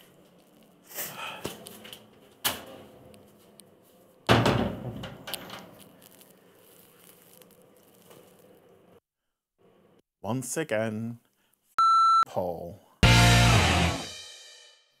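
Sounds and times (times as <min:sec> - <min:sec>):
door banging shut: 0:04.3 - 0:05.7.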